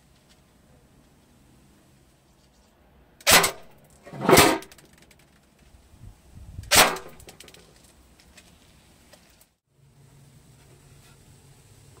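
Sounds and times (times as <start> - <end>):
airsoft rifle shots hitting metal pan: 3.2 - 4.8, 6.7 - 7.6.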